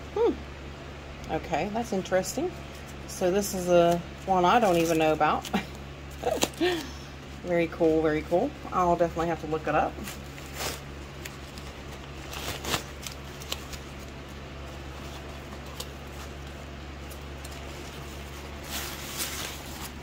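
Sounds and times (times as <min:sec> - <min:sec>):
steady low hum: 0:00.0 - 0:20.0
paper and plastic bag rustling: 0:04.5 - 0:05.6, 0:09.9 - 0:20.0.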